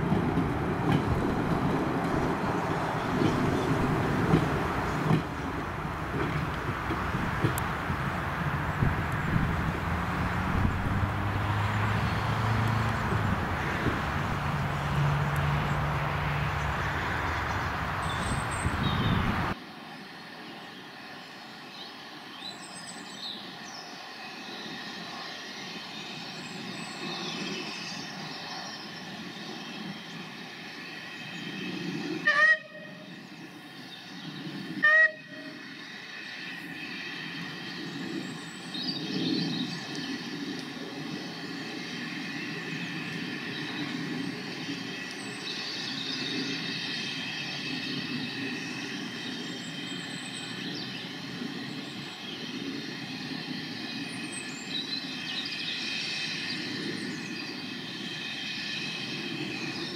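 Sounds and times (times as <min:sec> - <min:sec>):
train running along the line: 0:00.0 - 0:59.9
steam locomotive whistle toots: 0:32.2 - 0:33.1, 0:34.8 - 0:35.6.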